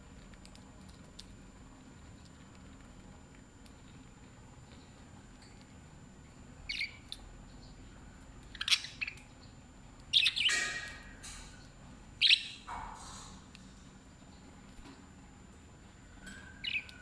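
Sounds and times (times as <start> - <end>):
budgerigars chirping: 6.7 - 7.0, 8.5 - 9.2, 10.1 - 11.0, 12.2 - 12.6, 16.6 - 17.0.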